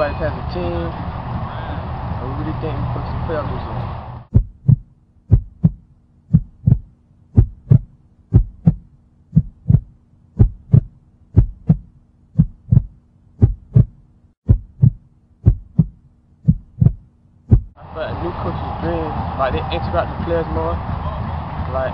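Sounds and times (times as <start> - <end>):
heartbeat double thump: 4.3 - 17.8.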